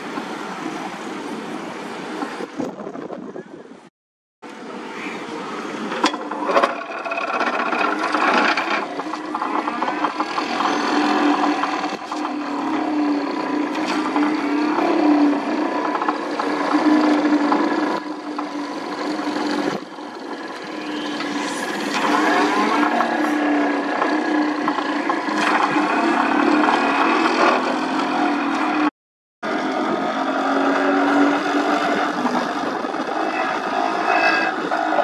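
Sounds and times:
metallic rattling and clanks: 5.9 - 12.5.

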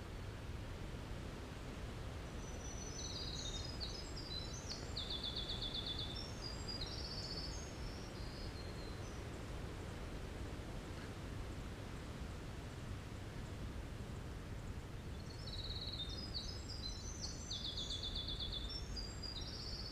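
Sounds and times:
wren singing high trills: 2.4 - 9.2, 15.1 - 19.9.

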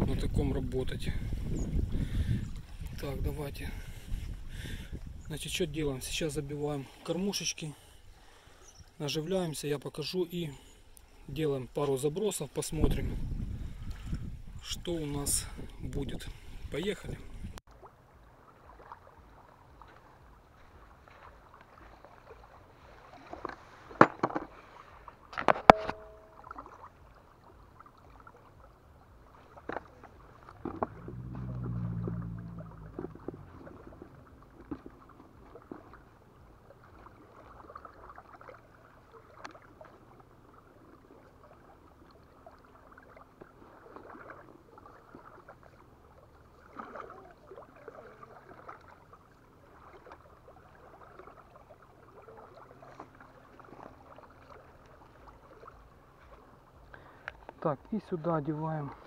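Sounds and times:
small waves lapping on shore: 0.0 - 59.0
low rumble: 30.6 - 35.5.

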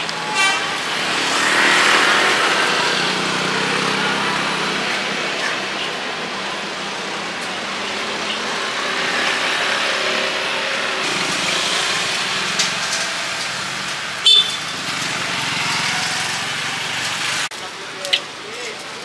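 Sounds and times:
passing traffic: 0.0 - 19.0
vehicle horn toot: 0.3 - 0.8, 14.2 - 14.8.

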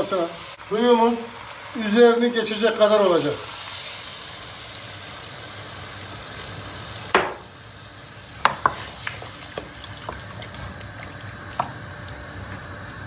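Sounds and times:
water sizzling in hot pot: 0.0 - 13.0
knock: 7.2 - 7.4
wooden spoon tapping pot: 7.2 - 7.4.

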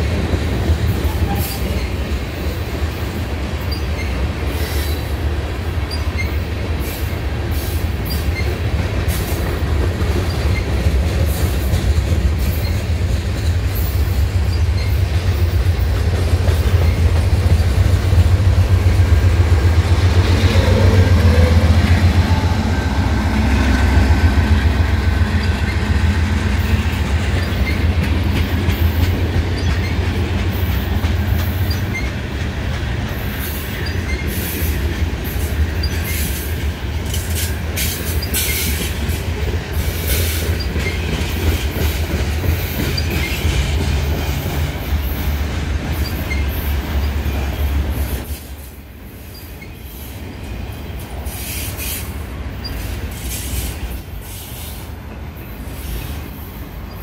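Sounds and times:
train wheels clacking on rails: 0.0 - 57.0
high-pitched wheel squeals: 27.4 - 27.9, 46.0 - 47.7.

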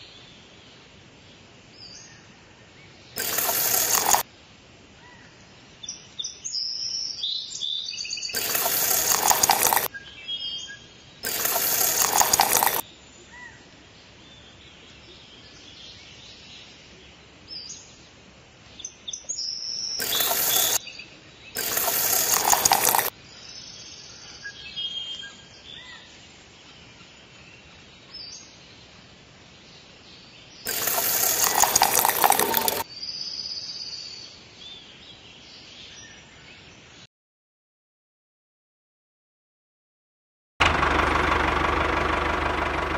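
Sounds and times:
cement slurry pouring: 3.2 - 4.2, 8.4 - 9.9, 11.2 - 12.8, 20.0 - 20.8, 21.6 - 23.1, 30.7 - 32.8.

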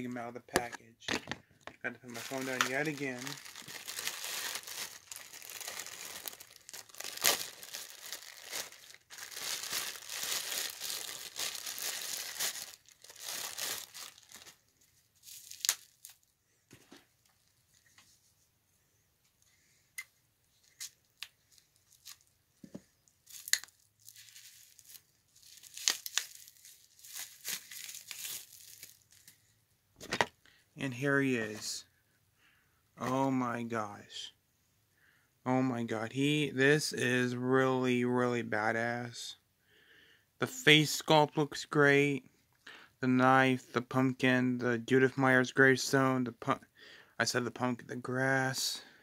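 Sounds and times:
plastic packaging crinkling: 0.6 - 16.3, 20.7 - 22.3, 23.1 - 29.4.

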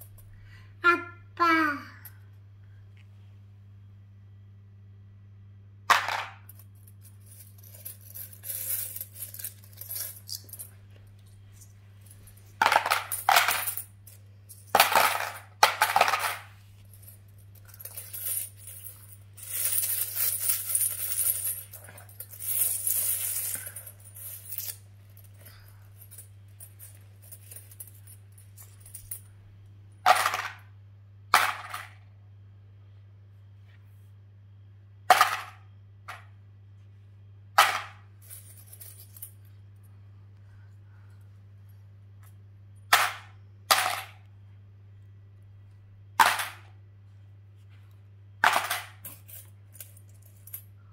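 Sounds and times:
coins clinking and jingling: 6.0 - 10.8, 11.6 - 29.4, 37.7 - 39.6, 48.4 - 50.7.

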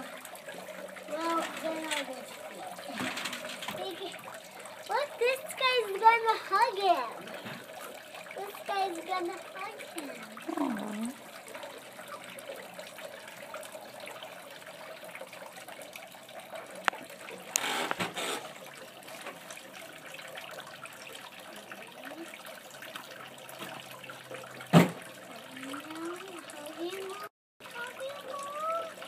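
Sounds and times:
fountain water trickling: 0.0 - 29.0.

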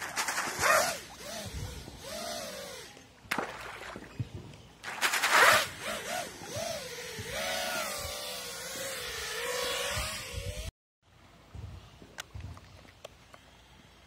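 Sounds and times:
drone motors whining: 0.6 - 3.2, 5.5 - 10.7
splash and churning water: 3.3 - 4.1.

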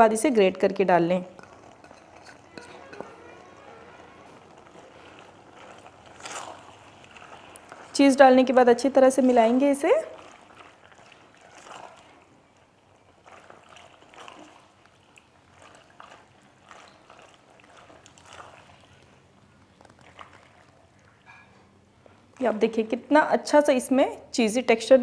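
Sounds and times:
spatula stirring pasta in sauce: 1.3 - 19.2.

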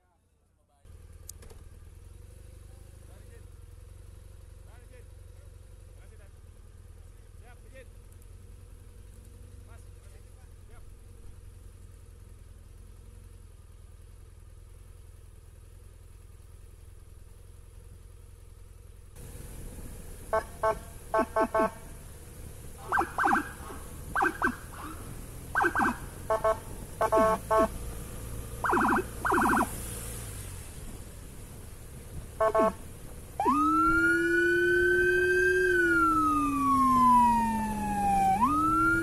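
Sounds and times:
engine and road noise: 0.0 - 39.0
electronic siren blasts: 20.3 - 21.9, 22.8 - 27.8, 28.6 - 29.8, 32.4 - 32.8, 33.4 - 39.0.

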